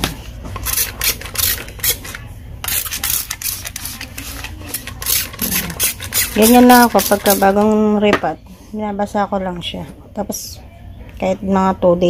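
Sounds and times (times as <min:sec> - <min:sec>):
rustling and scraping handling: 0:00.0 - 0:07.7.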